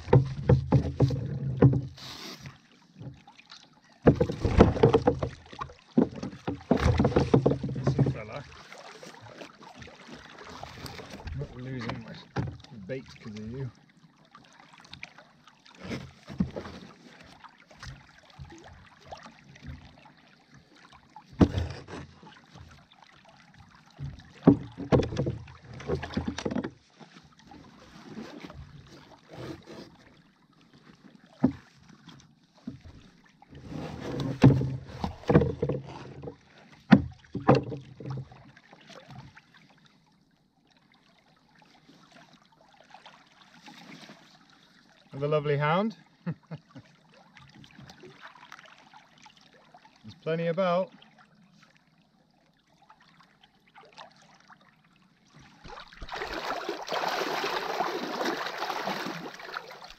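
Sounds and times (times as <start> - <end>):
knocks and thumps on kayak hull: 0.0 - 3.3, 4.0 - 13.5, 15.8 - 20.0, 21.2 - 22.9, 23.8 - 30.2, 30.8 - 39.3, 55.6 - 59.9.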